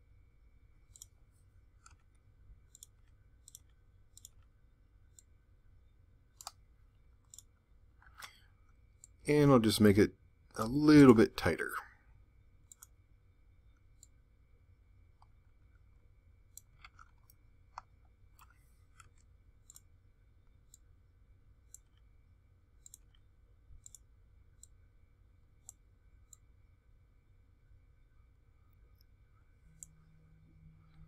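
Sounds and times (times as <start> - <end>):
low steady room hum: 0.0 - 31.0
faint computer mouse clicks: 0.9 - 1.2, 1.8 - 4.5, 6.4 - 6.6, 7.2 - 8.4, 12.7 - 13.0, 16.5 - 19.9, 22.8 - 24.8, 25.6 - 26.5.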